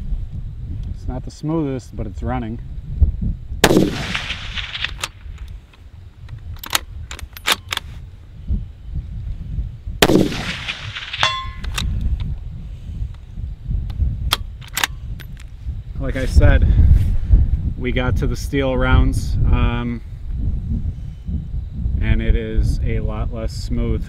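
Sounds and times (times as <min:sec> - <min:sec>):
rifle shots: 0:03.6 - 0:05.4, 0:10.0 - 0:11.8
rifle bolt clacking: 0:06.6 - 0:07.8, 0:10.5 - 0:11.9.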